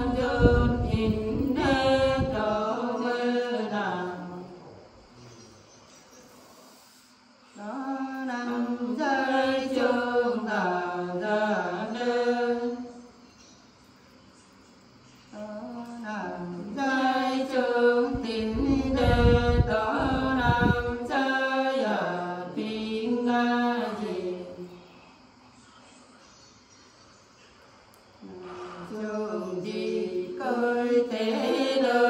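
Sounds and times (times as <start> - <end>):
women singing unaccompanied: 0.0 - 4.6, 7.5 - 13.2, 15.3 - 25.0, 28.2 - 32.0.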